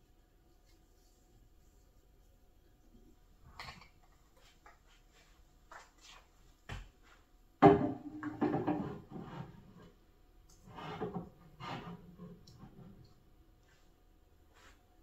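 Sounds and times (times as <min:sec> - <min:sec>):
items knocking on shelf: 0:07.6 - 0:09.1.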